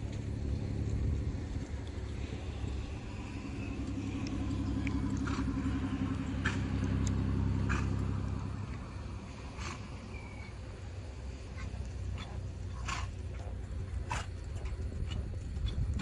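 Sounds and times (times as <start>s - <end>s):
hoof strikes on dirt: 0.0s - 8.9s
car passing: 0.0s - 16.0s.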